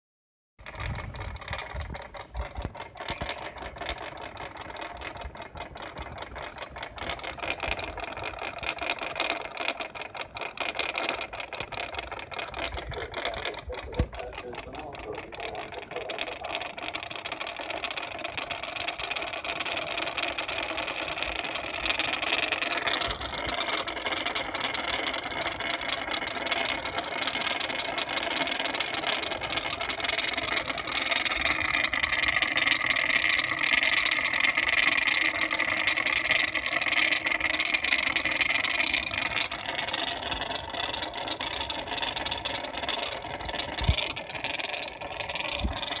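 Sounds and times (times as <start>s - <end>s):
small electric motor whirring: 0.6s - 46.0s.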